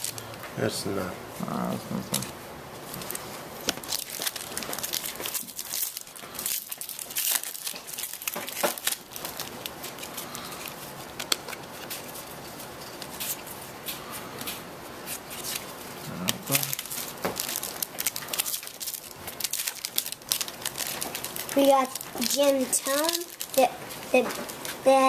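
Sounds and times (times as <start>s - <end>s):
foil wrappers crinkling: 0.0s - 0.4s, 1.7s - 25.0s.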